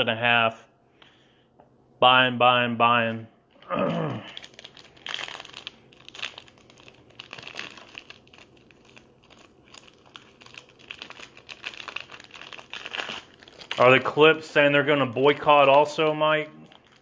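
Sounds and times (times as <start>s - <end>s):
foil wrapper crinkling: 4.2s - 17.0s.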